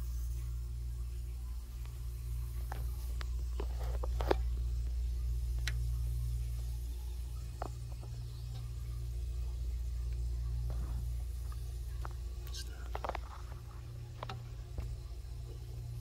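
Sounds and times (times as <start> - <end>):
air handler humming: 0.0 - 16.0.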